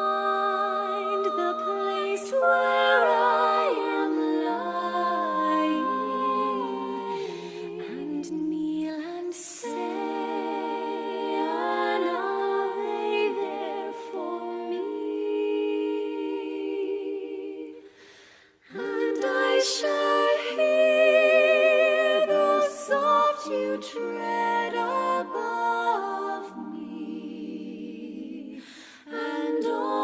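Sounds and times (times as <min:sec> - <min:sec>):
voices humming in harmony: 0:00.0 - 0:08.7, 0:09.6 - 0:17.7.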